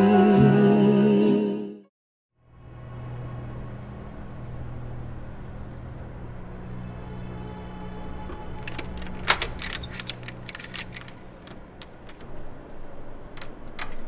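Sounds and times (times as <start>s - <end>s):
low droning film score: 2.4s - 13.5s
door lock metallic clicks and rattles: 8.3s - 12.6s, 13.2s - 14.0s.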